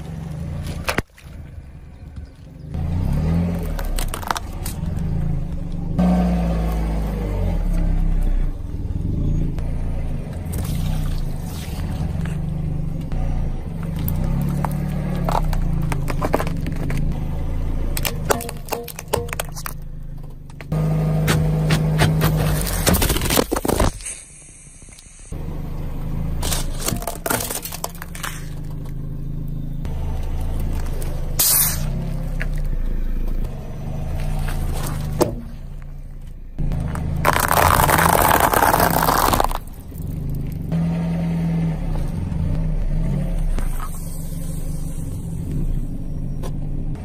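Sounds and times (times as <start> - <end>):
tyre crushing objects: 13.8 - 17.3, 17.9 - 24.2, 26.4 - 28.8, 36.7 - 40.6
plastic bottle cracking: 26.5 - 28.3, 36.9 - 40.1.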